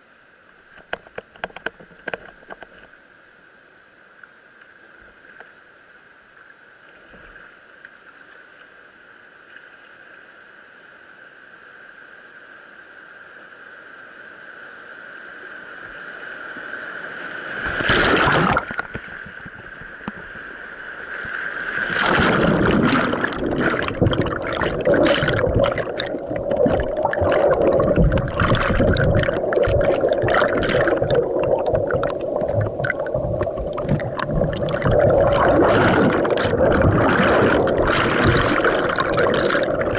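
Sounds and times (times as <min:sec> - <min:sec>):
kayak splashing into water: 0:17.6 - 0:19.8, 0:21.7 - 0:39.9
underwater gurgling and bubbling: 0:17.6 - 0:20.4, 0:21.6 - 0:39.9
whitewater rapid rushing: 0:21.8 - 0:39.9
churning whitewater pounding: 0:21.9 - 0:39.9.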